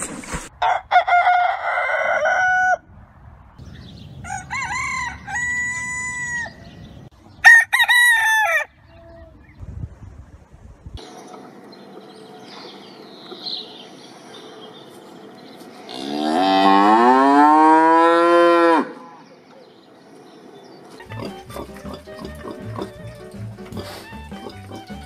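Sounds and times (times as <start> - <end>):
cow mooing: 15.9 - 19.0
music with a steady beat: 21.2 - 25.0.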